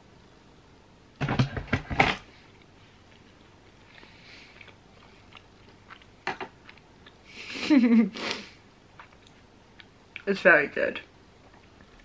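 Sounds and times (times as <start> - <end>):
person chewing: 2.6 - 7.4, 8.9 - 10.3.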